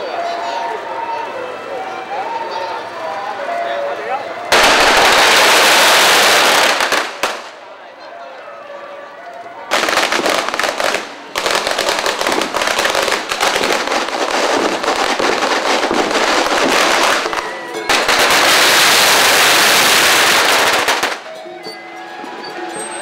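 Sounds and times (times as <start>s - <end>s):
firecrackers crackling: 4.5s - 7.8s, 9.7s - 21.4s.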